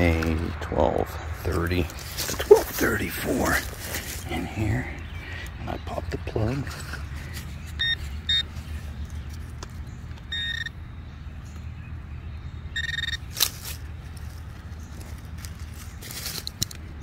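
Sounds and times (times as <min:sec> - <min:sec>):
metal detector warbling beeps: 0:07.8 - 0:08.5, 0:10.3 - 0:10.8, 0:12.7 - 0:13.3.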